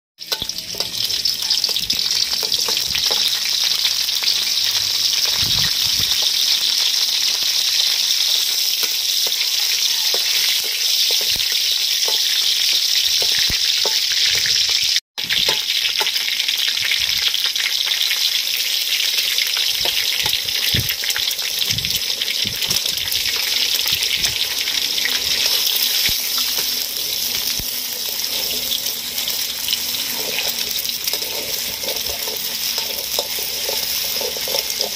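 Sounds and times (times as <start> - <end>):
oil sizzling in a wok: 0.2 - 34.9
metal spatula scraping pan: 22.3 - 34.9.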